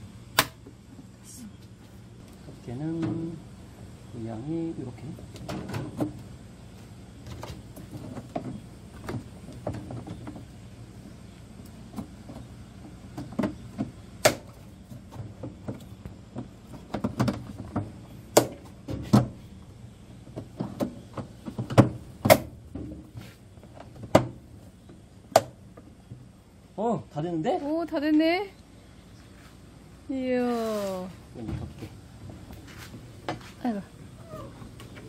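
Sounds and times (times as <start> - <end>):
sharp plastic snaps: 0.3 - 0.7.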